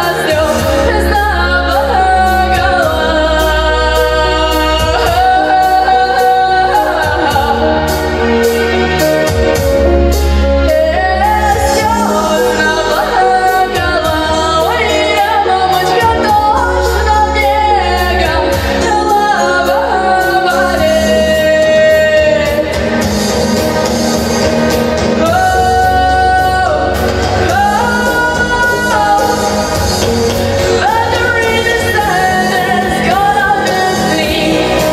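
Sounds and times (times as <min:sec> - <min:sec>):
instrumental backing music: 0:00.0 - 0:34.9
girl singing into a microphone: 0:10.8 - 0:22.6.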